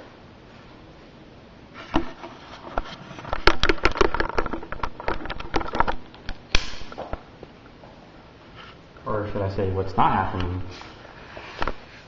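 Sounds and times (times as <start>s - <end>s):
handling clicks and knocks: 3.3s - 6.4s.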